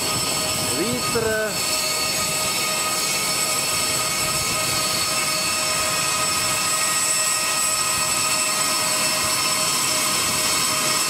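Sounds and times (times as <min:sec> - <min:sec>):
high whining tones: 0:00.0 - 0:11.0
jet engine rushing: 0:00.0 - 0:11.0.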